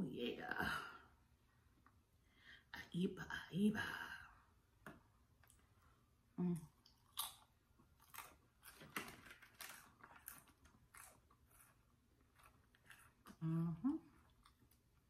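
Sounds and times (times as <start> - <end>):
person humming: 6.4 - 6.7, 13.4 - 14.1
person chewing food: 6.6 - 15.0.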